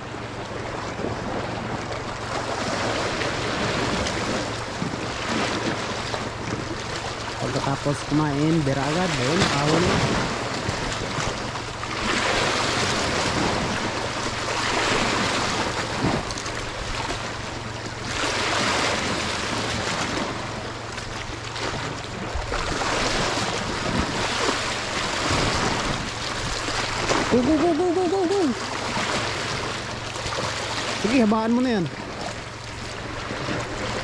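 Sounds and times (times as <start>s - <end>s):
low steady hum: 0.0s - 34.0s
sea waves washing in: 0.0s - 34.0s.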